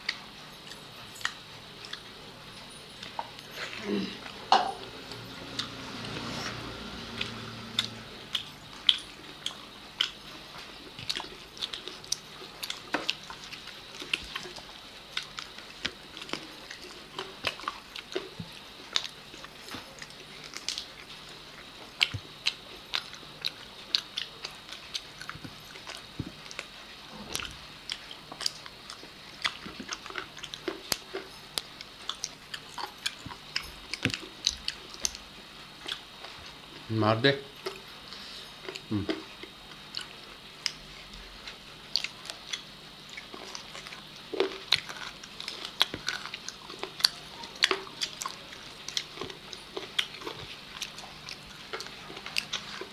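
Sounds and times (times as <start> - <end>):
people chewing and biting food: 0.0 - 52.9.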